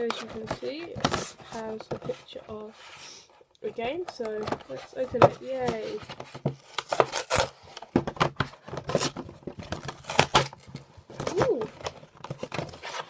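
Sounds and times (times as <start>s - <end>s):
cardboard flaps tearing: 5.5s - 13.0s.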